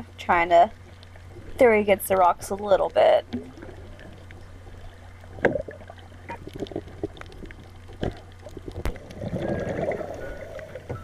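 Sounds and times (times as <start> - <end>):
steady low hum: 0.0 - 11.0
sharp underwater clicks and pops: 5.2 - 10.0.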